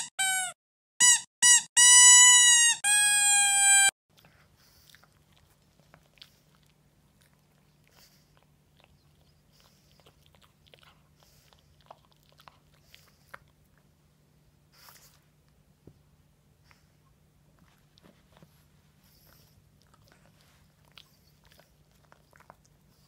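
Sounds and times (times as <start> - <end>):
puppy chewing towel: 4.1 - 15.8, 16.6 - 23.0.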